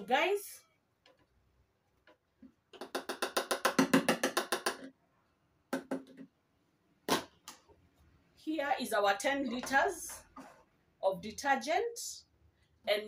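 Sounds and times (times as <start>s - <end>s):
rapid hollow taps: 2.4s - 4.9s.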